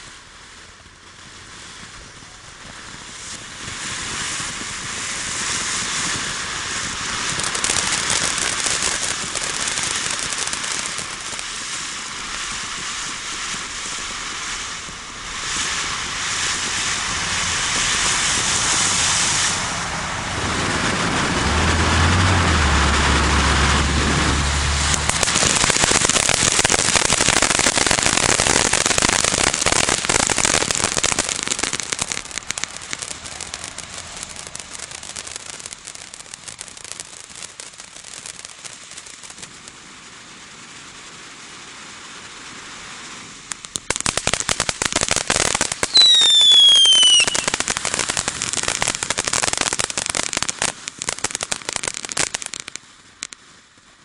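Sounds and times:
firework fountain hissing and crackling: 0.0 - 54.0
low rumble: 17.0 - 25.8.

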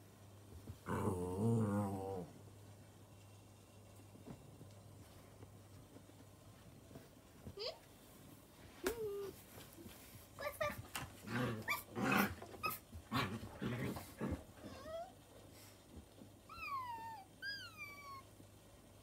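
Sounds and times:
puppy growling: 0.8 - 2.4, 11.2 - 15.1.

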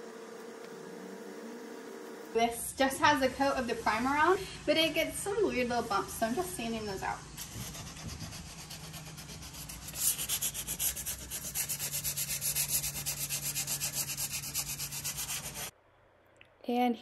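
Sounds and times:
sandpaper rubbing on wood: 7.4 - 15.7.

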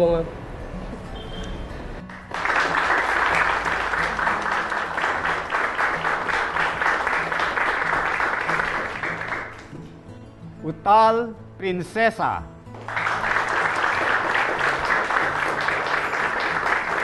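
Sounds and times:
audience applauding: 2.1 - 9.8, 12.7 - 17.0.

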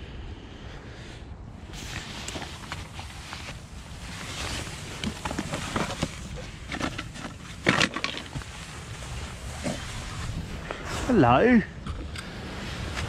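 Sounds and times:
tarp fabric rustling: 1.7 - 11.4.

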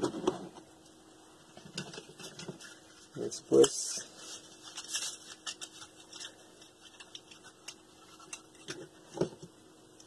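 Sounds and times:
paper wrapping crinkling: 2.1 - 8.6.

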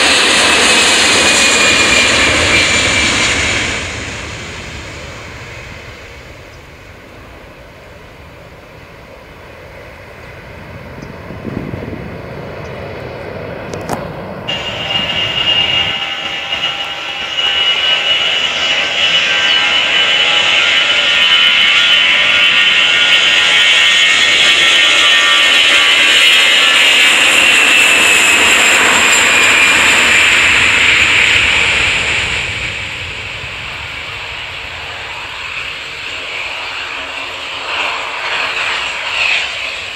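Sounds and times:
jet engine roar with whine: 0.0 - 39.9.

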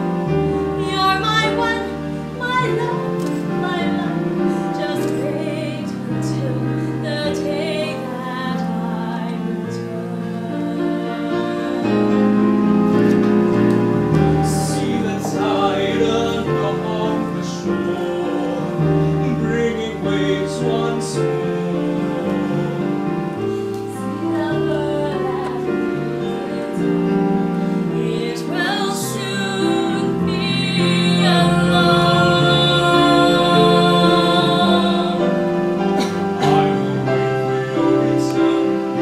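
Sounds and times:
woman singing: 0.3 - 12.5, 23.8 - 35.6.

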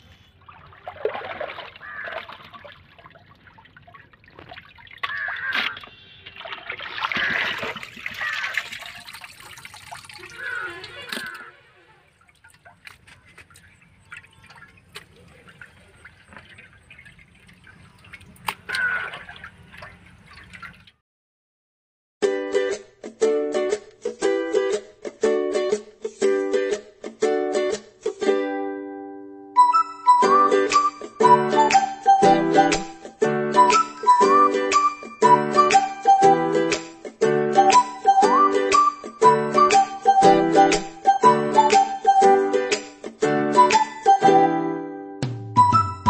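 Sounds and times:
water sloshing in a pot: 0.0 - 21.0
plucked string music: 22.2 - 46.0.

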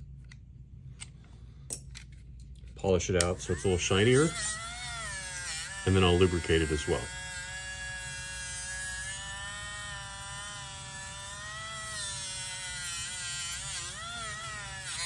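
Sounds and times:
rotary tool high whine: 3.2 - 15.0.

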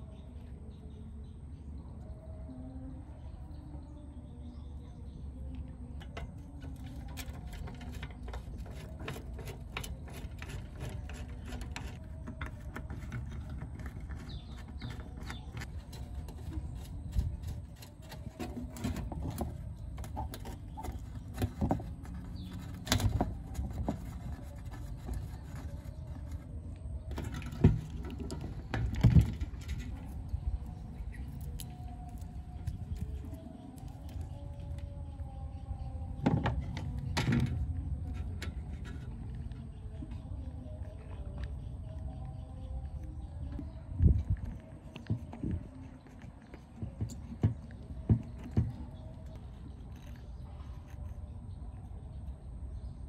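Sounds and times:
tools clicking and scraping on metal: 6.0 - 30.4.

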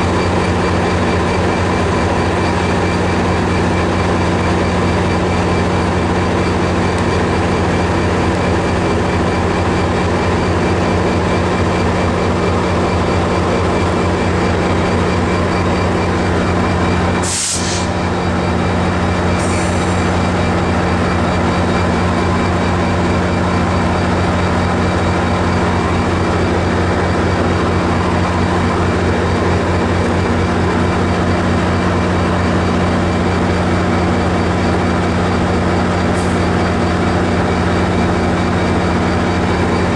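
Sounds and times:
diesel locomotive engine drone: 0.0 - 39.9.

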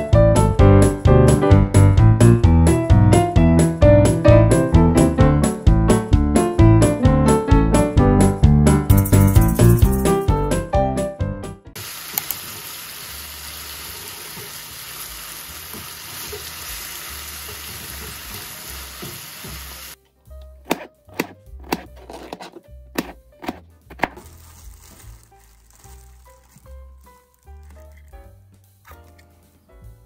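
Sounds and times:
background music: 0.0 - 11.8, 20.0 - 30.0
food sizzling in a pan: 11.8 - 20.0
sharp kitchen knocks: 20.7 - 22.4.

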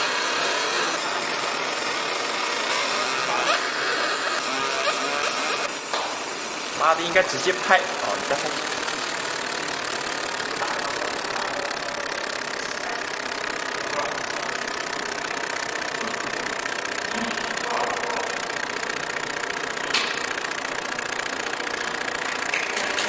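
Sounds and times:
laser machine humming: 0.0 - 23.0
thin high whine: 0.0 - 23.0.

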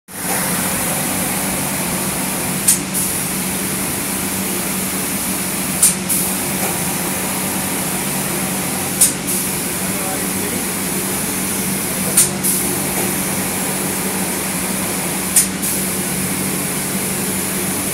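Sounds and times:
machine low hum: 0.2 - 17.9
spray gun hissing: 0.5 - 17.9.

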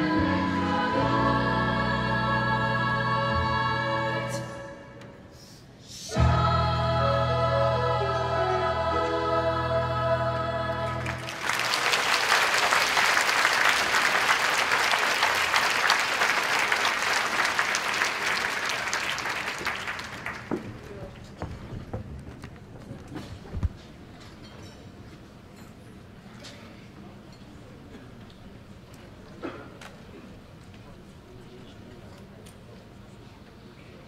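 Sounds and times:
children's choir singing: 0.0 - 5.1, 6.0 - 12.0
audience applause: 10.9 - 21.0.

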